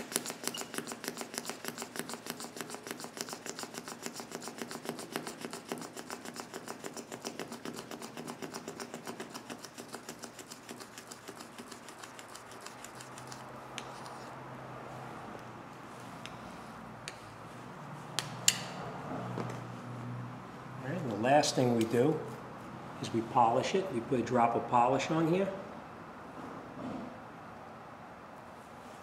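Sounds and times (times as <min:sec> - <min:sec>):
razor blade scraping glass: 0:00.0 - 0:14.4.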